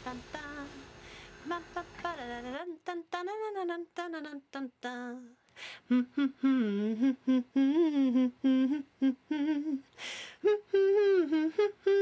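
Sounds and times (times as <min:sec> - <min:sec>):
breath: 0:01.0 - 0:01.4, 0:05.5 - 0:05.9, 0:10.0 - 0:10.4
person humming: 0:05.8 - 0:12.0.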